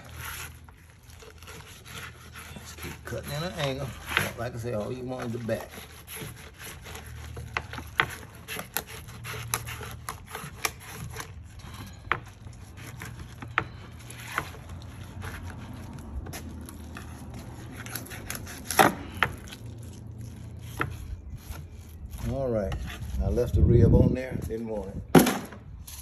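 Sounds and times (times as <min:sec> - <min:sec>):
knife clicking and scraping fish bones: 0:06.2 - 0:11.4.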